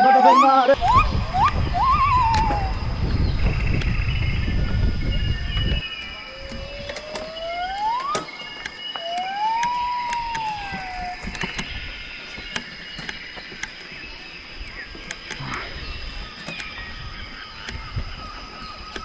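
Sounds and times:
steady high animal calls: 0.0 - 3.0, 6.0 - 12.1
whistled animal calls gliding in pitch: 0.0 - 3.3, 5.1 - 12.0
scattered clicks: 6.0 - 13.8.

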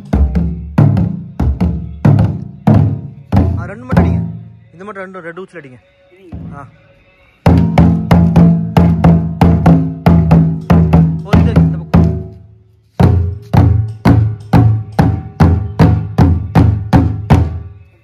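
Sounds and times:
large drums beaten with sticks: 0.0 - 4.4, 7.4 - 12.4, 13.0 - 17.7.

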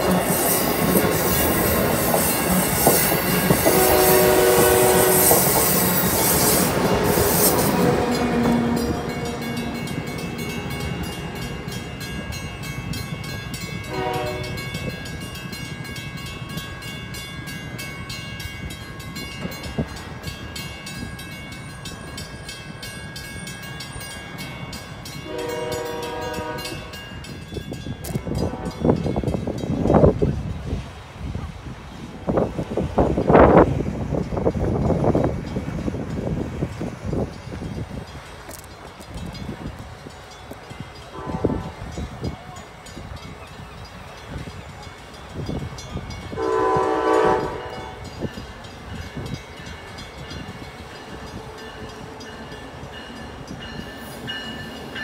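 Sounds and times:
train wheels on rails: 0.0 - 55.0
train horn blasts: 3.3 - 11.2, 13.8 - 14.9, 25.2 - 27.2, 28.2 - 29.0, 41.1 - 42.1, 46.3 - 48.3.

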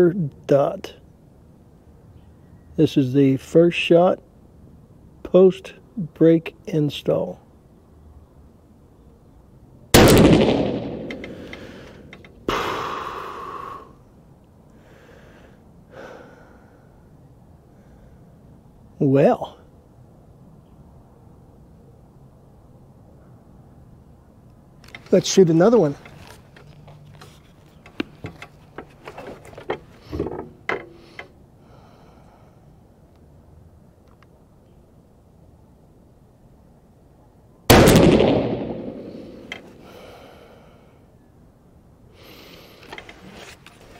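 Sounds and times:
rifle shot reverberating: 10.0 - 11.5, 37.7 - 39.6
rifle bolt metallic clicks: 10.0 - 12.4.

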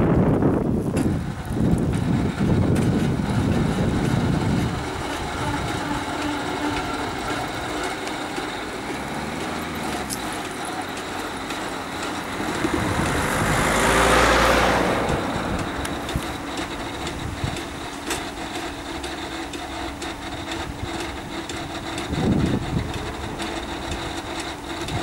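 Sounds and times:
low wind rumble on microphone: 0.0 - 19.0, 19.9 - 25.0
car passing close by: 7.9 - 17.2.

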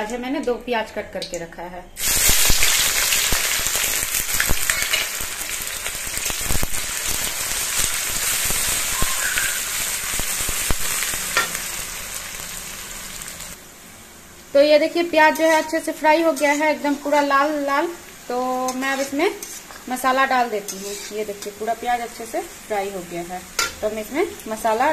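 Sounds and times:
onions sizzling in hot oil: 2.0 - 24.9
spatula scraping pan: 15.3 - 17.2, 18.6 - 20.0, 20.6 - 21.6.

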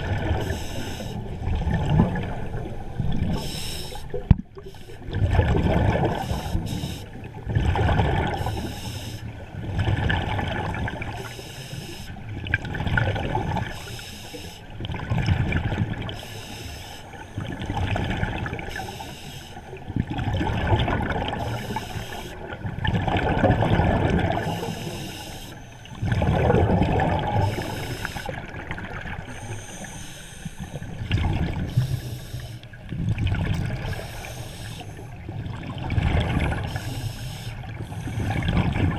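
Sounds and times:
scuba regulator exhaling bubbles: 0.0 - 8.8, 20.0 - 25.2, 26.0 - 30.0, 37.7 - 38.9.

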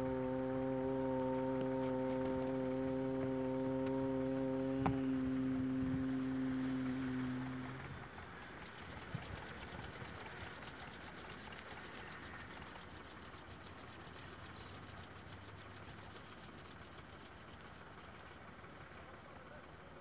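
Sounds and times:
low hummed tone: 0.0 - 19.6
palms rubbing together: 8.4 - 18.4.

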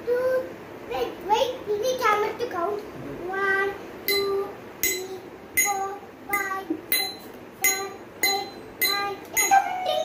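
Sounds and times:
spoon tapping steel container: 6.4 - 9.6.

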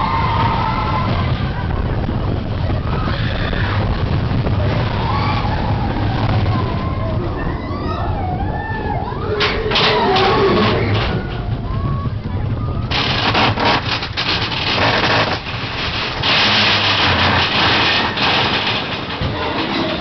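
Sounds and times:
loud rushing noise: 0.0 - 20.0
roller coaster rumbling and clattering: 0.0 - 20.0
voices: 0.1 - 13.4.

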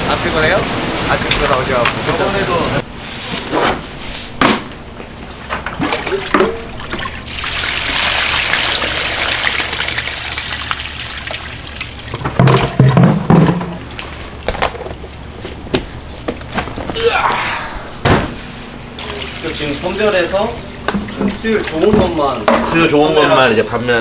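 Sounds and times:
water pouring: 5.8 - 13.6, 19.0 - 22.2
knocks and clatter: 12.2 - 13.8.

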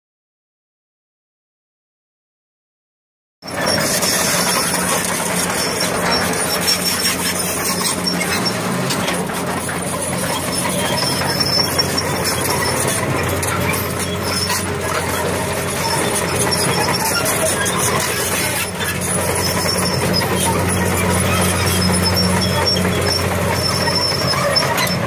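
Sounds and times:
diesel engine running: 3.4 - 25.0
steel tracks clanking: 3.4 - 25.0
thin high squeaks: 3.4 - 25.0.

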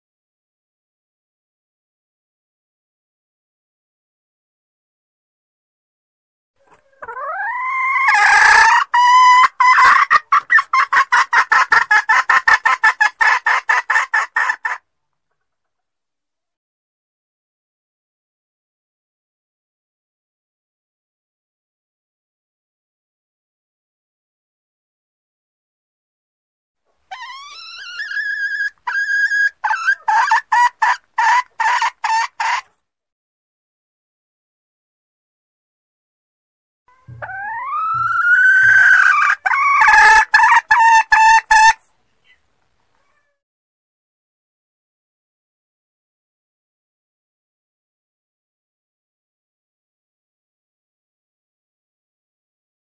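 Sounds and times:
hen clucking: 6.6 - 14.8, 27.1 - 32.7, 36.9 - 41.9
junglefowl hen calling: 6.6 - 14.8, 27.1 - 32.7, 36.9 - 42.4.

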